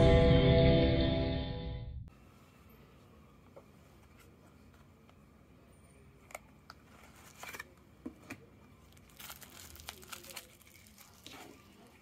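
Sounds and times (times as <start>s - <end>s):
plastic wrapping crinkling: 8.8s - 12.0s.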